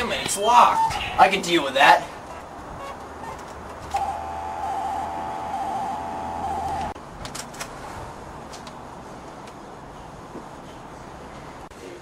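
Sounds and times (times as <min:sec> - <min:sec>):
electronic buzz: 0:03.9 - 0:07.0.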